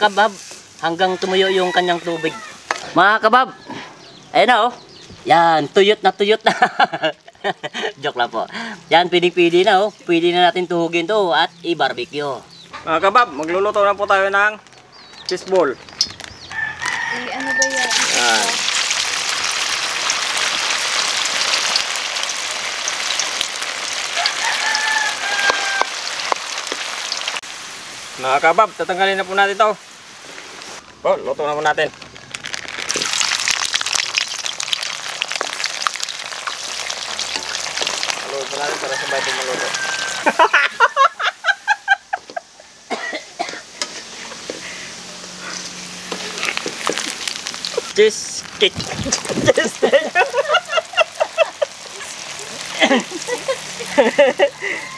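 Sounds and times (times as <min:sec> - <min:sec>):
food deep-frying in hot oil: 0:00.0 - 0:02.9, 0:04.9 - 0:12.7, 0:13.3 - 0:42.9, 0:43.5 - 0:54.9
breaths: 0:03.6 - 0:04.2, 0:08.5 - 0:08.9, 0:44.5 - 0:45.8, 0:54.6 - 0:54.9
person laughing heartily: 0:06.5 - 0:08.0, 0:40.2 - 0:42.7, 0:48.9 - 0:54.9.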